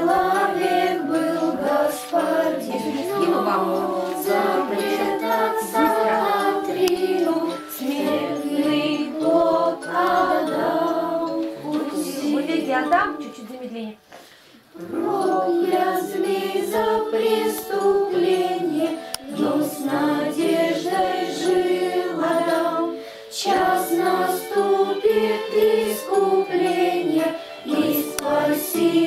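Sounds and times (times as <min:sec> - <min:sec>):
girls singing a hymn: 0:00.0 - 0:12.9, 0:14.7 - 0:29.0.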